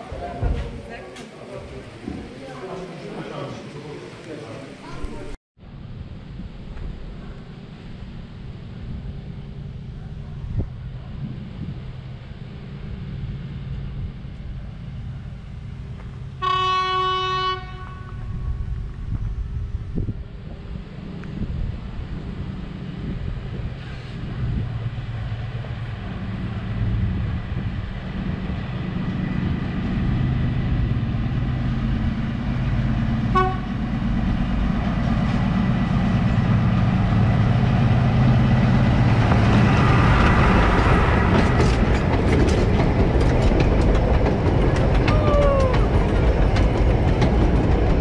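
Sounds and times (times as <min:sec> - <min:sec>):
diesel locomotive passing: 0:00.0 - 0:48.0
train horn toot: 0:16.4 - 0:18.7, 0:33.3 - 0:33.8
wheel clicks over rail joints: 0:41.3 - 0:48.0.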